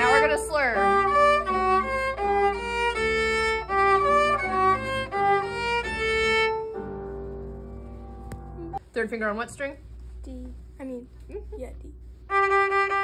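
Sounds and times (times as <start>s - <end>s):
violin bowed notes: 0.0s - 8.8s, 12.3s - 13.0s.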